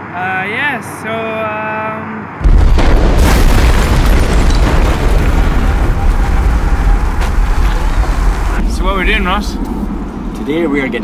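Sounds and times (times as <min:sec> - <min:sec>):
explosion blast: 0:02.4 - 0:09.2
continuous rumbling: 0:02.4 - 0:11.0.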